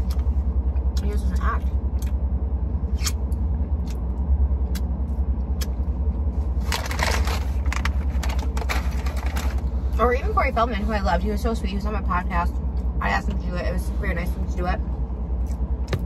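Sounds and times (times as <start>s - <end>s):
low rumble in car cabin: 0.0s - 16.0s
paper bag rustling: 6.5s - 9.8s.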